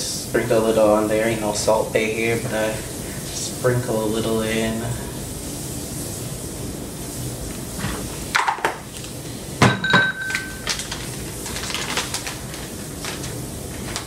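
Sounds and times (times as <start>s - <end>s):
containers knocking on counter: 9.6s - 10.3s.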